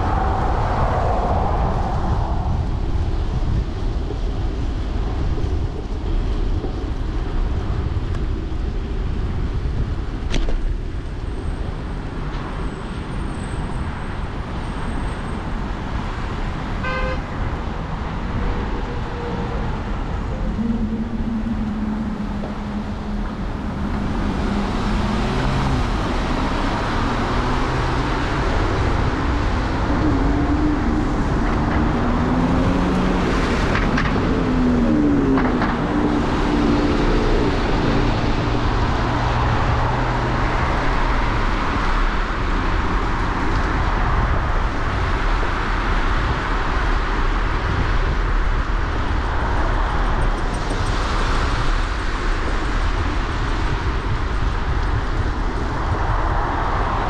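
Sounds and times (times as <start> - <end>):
wind and road noise: 0.0 - 57.0
passing vehicle engines humming: 12.9 - 57.0.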